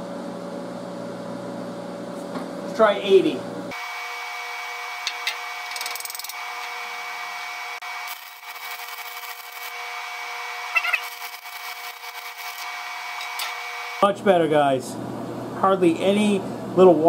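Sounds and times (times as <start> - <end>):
welding arc crackling hiss: 3.7 - 14.1.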